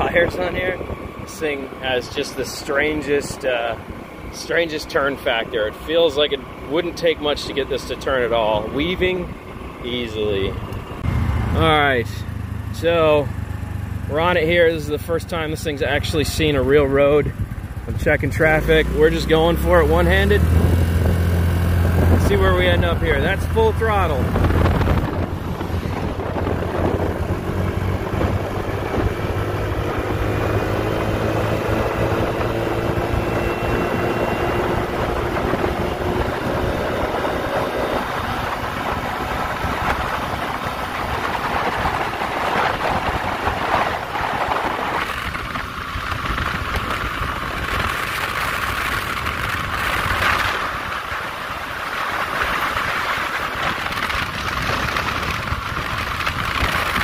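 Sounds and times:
scooter engine at full throttle: 0:00.0 - 0:57.0
wind on microphone: 0:20.4 - 0:57.0.

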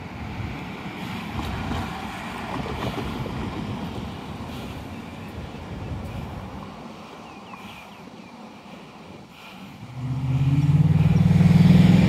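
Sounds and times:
wind buffeting microphone: 0:00.0 - 0:12.0
car driving by: 0:09.8 - 0:12.0.

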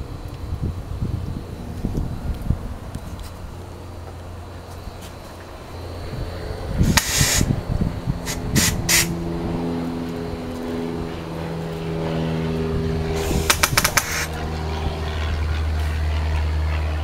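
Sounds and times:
steady engine hum: 0:00.0 - 0:17.0
air gun shots: 0:06.8 - 0:07.6, 0:08.2 - 0:09.2, 0:13.2 - 0:14.3.

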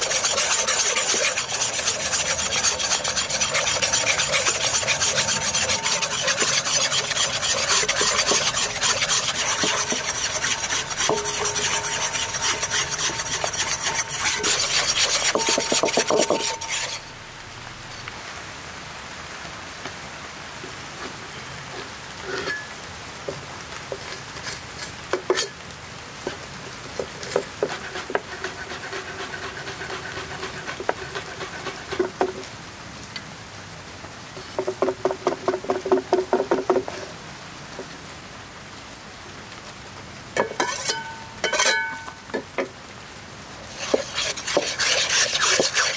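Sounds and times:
whisk scraping in a bowl: 0:00.0 - 0:17.1, 0:27.2 - 0:32.2, 0:40.5 - 0:41.9, 0:43.7 - 0:45.9.

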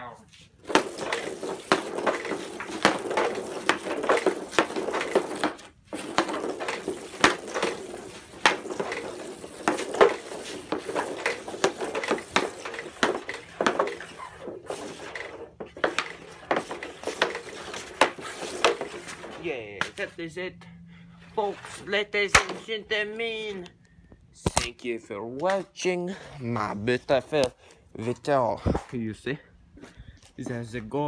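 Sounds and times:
hockey stick and puck clacking: 0:00.6 - 0:20.1, 0:22.2 - 0:22.8.

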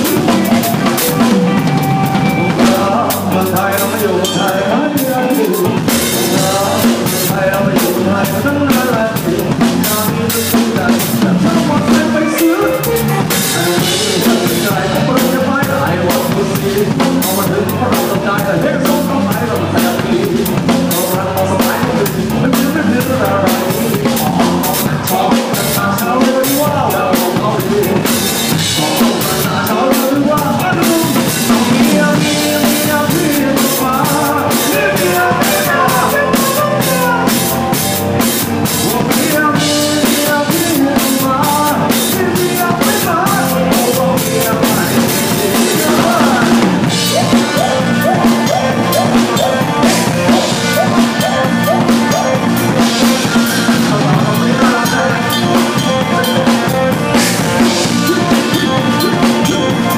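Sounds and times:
drum kit beat: 0:00.0 - 0:59.9
live band playing: 0:00.0 - 0:59.9.

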